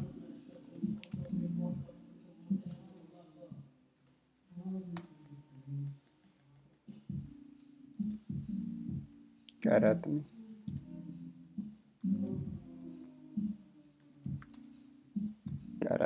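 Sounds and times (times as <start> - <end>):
faint low murmuring: 0.0 - 3.7
keyboard keystrokes: 0.8 - 1.4.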